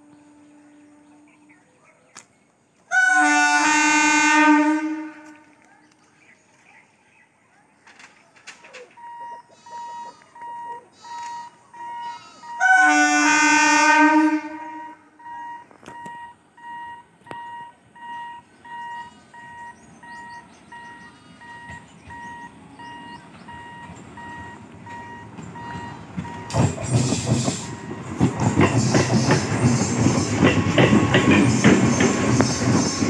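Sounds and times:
train horn blast: 0.0s - 1.7s, 2.9s - 5.6s, 11.0s - 15.2s
train rumble: 7.8s - 33.0s
level crossing short beeps: 9.0s - 12.6s, 14.8s - 26.6s.

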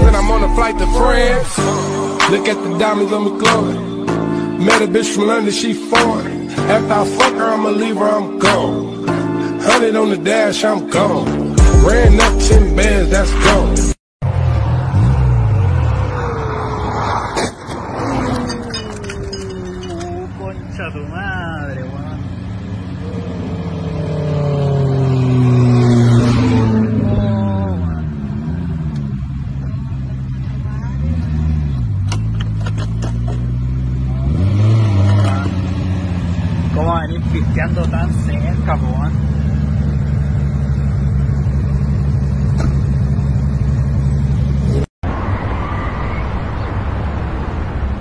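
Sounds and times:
car engine running: 18.4s - 44.9s
car engine idling: 36.0s - 44.6s.

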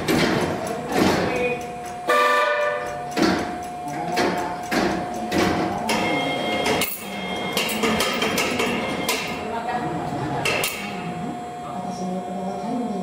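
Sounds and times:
machinery whine: 0.0s - 13.0s
machinery squeal: 5.9s - 7.9s.

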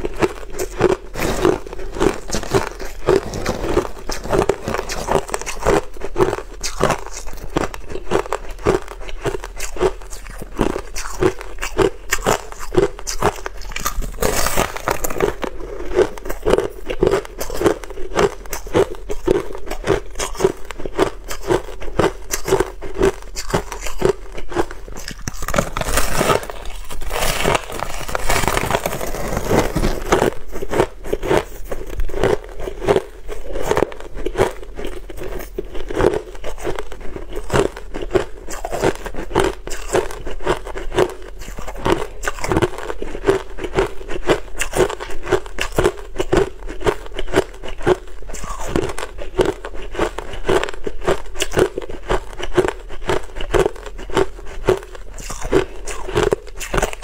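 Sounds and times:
ice crunching being chewed: 0.0s - 57.0s
ice crackling being broken: 25.4s - 30.1s.

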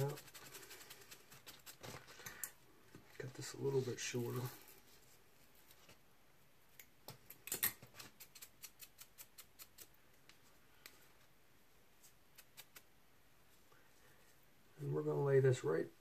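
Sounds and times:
scissors snipping hair: 8.2s - 10.0s.

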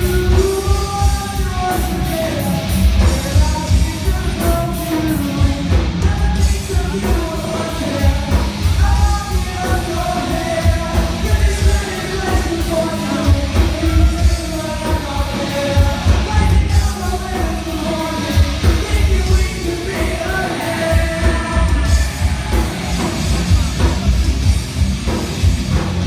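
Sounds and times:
person singing: 0.0s - 24.5s
live rock band playing: 0.0s - 26.0s
rapid kick drum beat: 15.8s - 26.0s.

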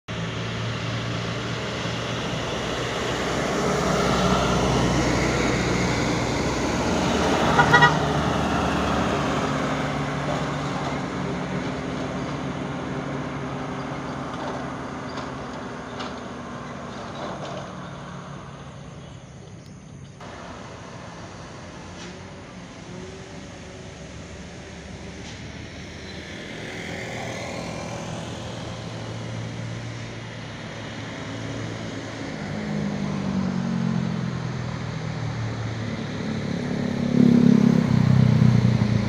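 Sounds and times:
trucks diesel engines passing: 0.0s - 39.0s
truck horn blast: 7.3s - 8.5s.

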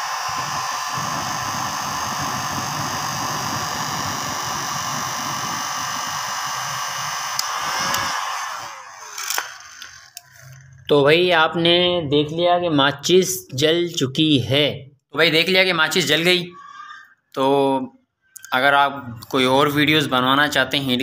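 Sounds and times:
heat gun fan blowing air: 0.0s - 10.5s.

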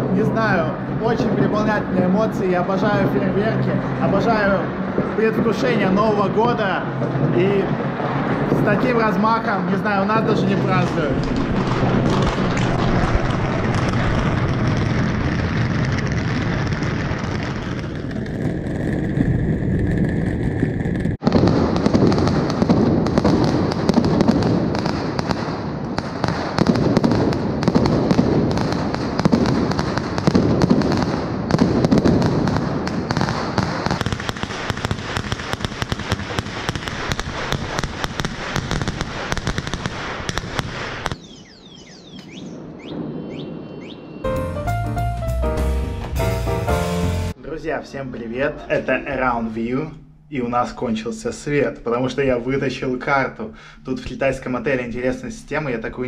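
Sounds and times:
fireworks and firecrackers banging: 0.0s - 41.6s
low rumble: 9.7s - 22.0s.

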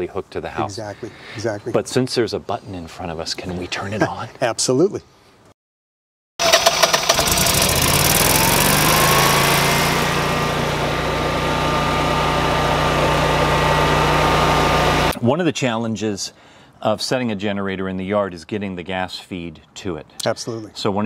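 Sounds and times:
generator engine starting and running: 6.4s - 15.2s
rising engine whine: 7.1s - 15.2s.

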